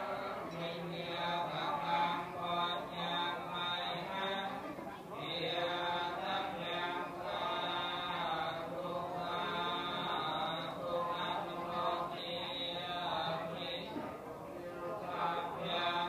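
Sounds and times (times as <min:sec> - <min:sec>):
slow sustained chanting: 0:00.0 - 0:16.0.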